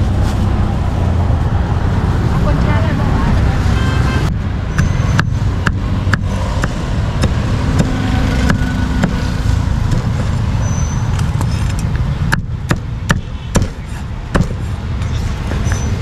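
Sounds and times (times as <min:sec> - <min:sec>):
street traffic rumble: 0:00.0 - 0:16.0
cleaver chopping on wooden board: 0:04.8 - 0:10.2, 0:12.3 - 0:14.6.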